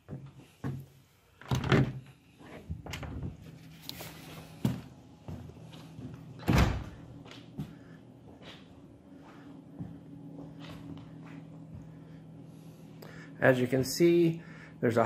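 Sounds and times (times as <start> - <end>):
heavy door thuds: 6.4 - 7.0.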